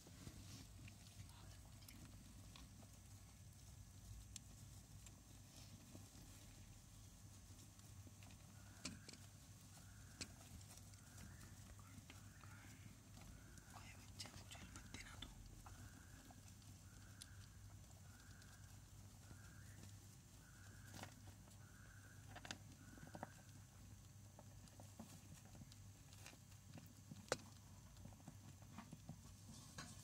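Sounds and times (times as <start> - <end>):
faint low hum: 0.0 - 30.0.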